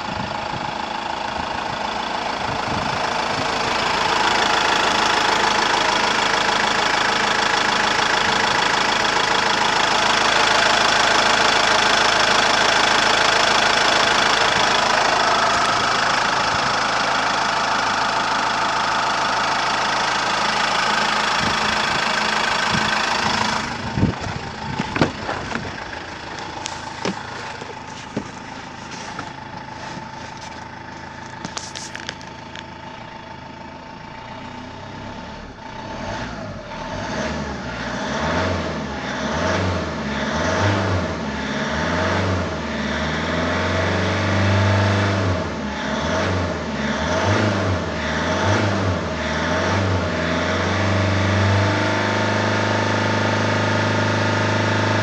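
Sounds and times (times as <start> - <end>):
diesel engine idling: 0.0 - 55.0
knocks and clicks: 24.0 - 25.8.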